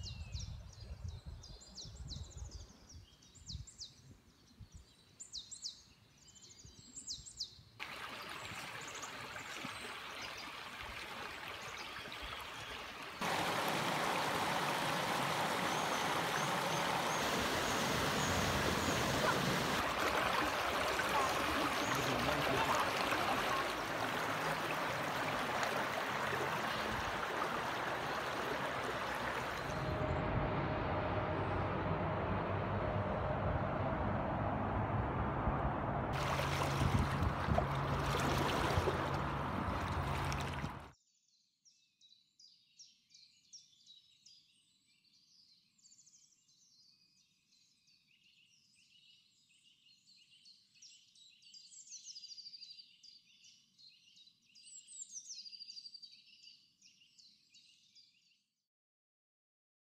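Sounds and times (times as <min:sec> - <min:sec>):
birds chirping: 0:00.0 - 0:33.8, 0:36.2 - 0:40.9
stream water flowing over weir: 0:07.8 - 0:34.1, 0:36.1 - 0:40.9
low engine hum: 0:13.2 - 0:40.9.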